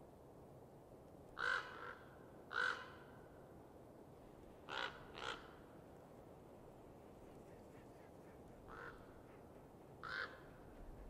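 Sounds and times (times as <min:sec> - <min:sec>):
faint steady hiss: 0:00.0 - 0:11.0
bird calling: 0:07.5 - 0:11.0.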